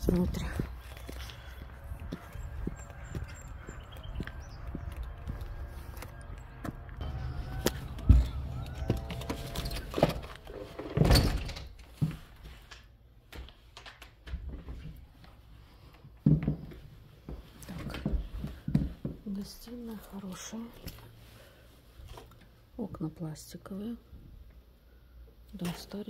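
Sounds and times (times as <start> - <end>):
footsteps: 0.0 - 11.2
front door opening and shutting: 6.6 - 12.3.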